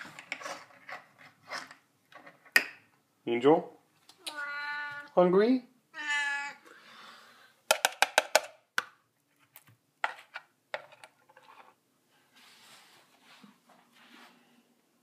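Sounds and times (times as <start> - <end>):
faint scraping: 11.3 - 14.7.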